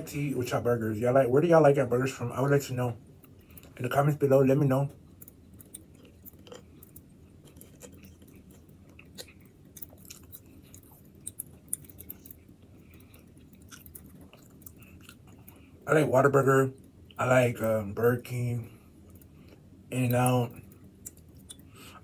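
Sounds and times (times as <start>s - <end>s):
man chewing food: 3.1s - 3.8s, 4.9s - 15.8s, 18.6s - 22.0s.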